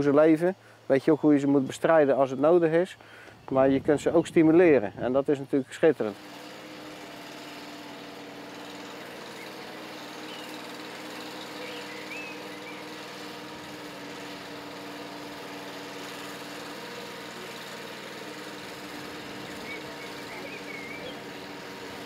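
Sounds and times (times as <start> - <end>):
lift motor humming: 5.9 - 22.0
faint bird chirps: 11.6 - 12.9, 19.4 - 21.2.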